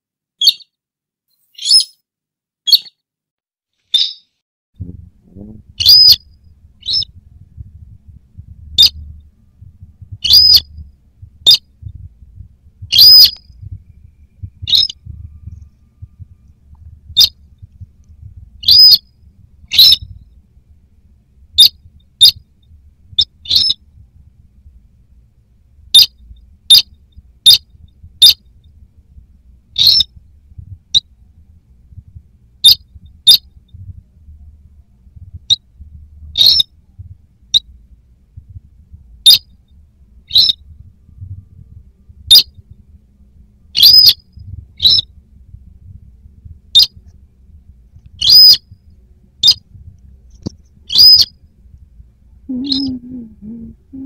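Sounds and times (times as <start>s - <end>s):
rail bird calls: 1.6s - 2.0s, 3.9s - 4.3s, 5.8s - 7.2s, 8.8s - 9.0s, 10.2s - 10.8s, 11.4s - 11.7s, 12.9s - 15.8s, 18.6s - 19.1s, 19.7s - 20.2s, 23.2s - 23.8s, 29.8s - 30.1s, 36.4s - 36.7s, 40.3s - 40.6s, 43.8s - 44.2s, 44.8s - 45.1s, 48.2s - 48.6s, 50.9s - 51.3s, 52.5s - 53.7s
low rumble: 4.8s - 54.0s.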